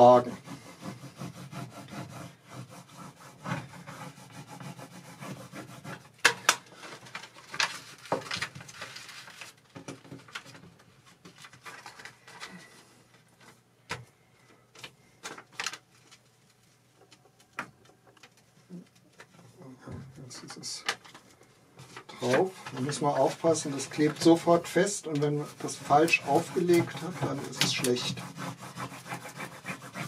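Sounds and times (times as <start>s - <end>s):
plastic rubbing on film: 0.0s - 12.6s, 20.5s - 30.0s.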